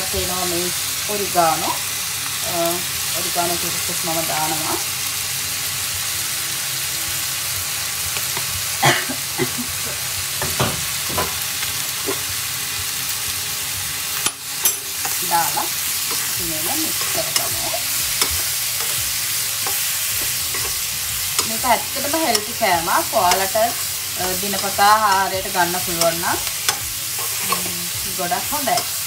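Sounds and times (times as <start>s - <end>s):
vegetables sizzling in wok: 0.0s - 29.0s
spatula scraping pan: 14.2s - 29.0s.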